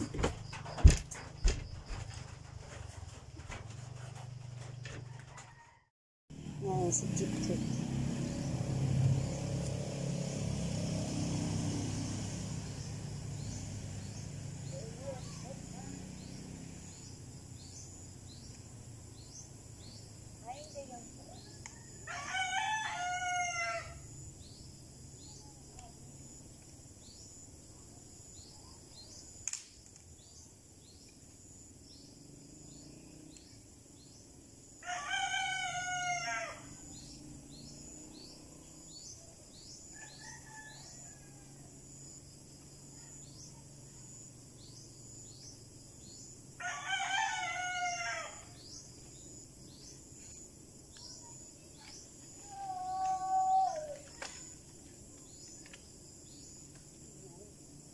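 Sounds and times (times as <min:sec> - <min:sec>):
rooster crowing: 0:05.0 - 0:05.9, 0:21.6 - 0:24.1, 0:34.8 - 0:36.9, 0:39.9 - 0:41.8, 0:46.6 - 0:48.6.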